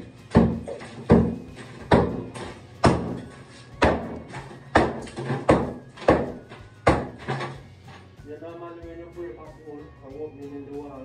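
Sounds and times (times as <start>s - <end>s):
hammer striking plaster wall: 0.0s - 7.6s.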